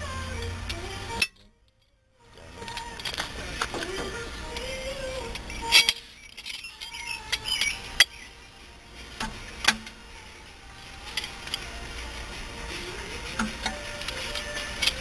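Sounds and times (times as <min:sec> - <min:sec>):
metal tools clinking: 0:02.6 - 0:04.8, 0:05.4 - 0:08.2, 0:13.4 - 0:15.0.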